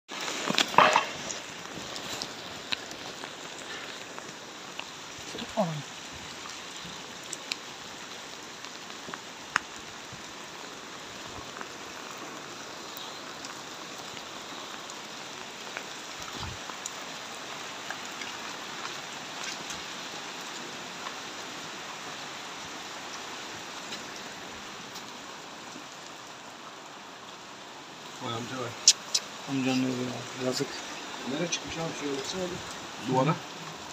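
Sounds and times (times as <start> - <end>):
rain on hard surfaces: 0.1 - 33.9
sharp drips and taps: 28.8 - 33.7.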